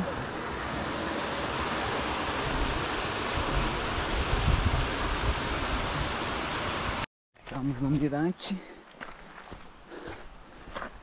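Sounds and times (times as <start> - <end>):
wind buffeting microphone: 2.4 - 6.2.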